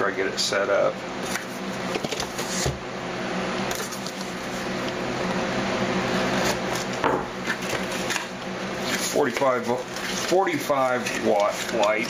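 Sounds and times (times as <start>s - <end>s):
cardboard scraping rustle: 1.2s - 2.8s, 8.8s - 12.0s.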